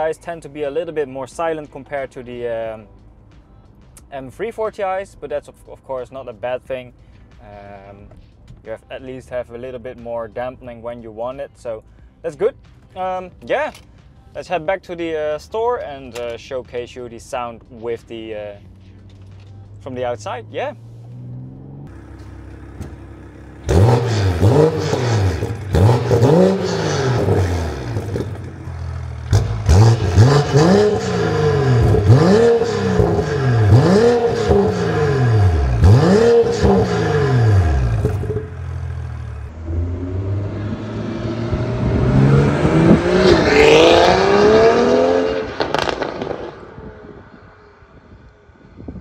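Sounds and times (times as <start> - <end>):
car engine revving: 18.6 - 47.8
exhaust crackles and pops: 21.9 - 31.1, 35.8 - 38.9, 45.5 - 47.3.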